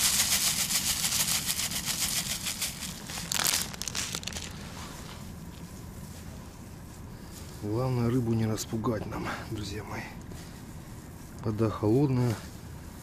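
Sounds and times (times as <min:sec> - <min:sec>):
oat flakes and packaging rustling: 0:00.0 - 0:05.8.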